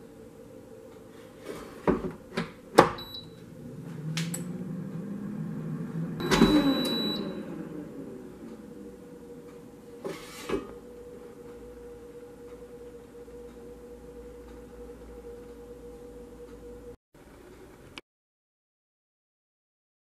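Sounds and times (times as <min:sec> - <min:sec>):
air fryer fan humming: 0:00.0 - 0:17.9
short beep: 0:03.0 - 0:03.4, 0:06.2 - 0:07.4.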